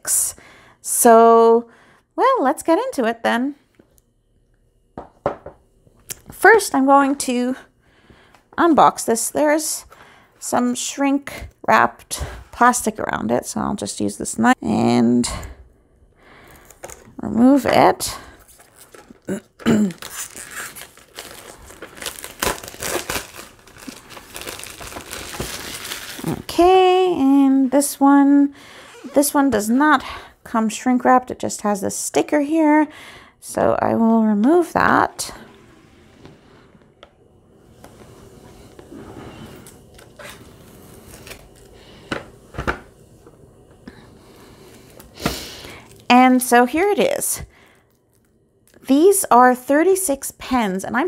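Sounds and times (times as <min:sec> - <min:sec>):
plastic shrink-wrap crinkling and tearing: 0:18.4 - 0:26.6, 0:39.9 - 0:41.8.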